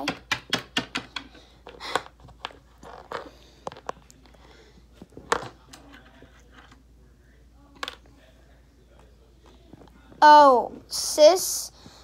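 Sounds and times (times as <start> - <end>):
plastic toys clicking on wooden floor: 0.0 - 4.0.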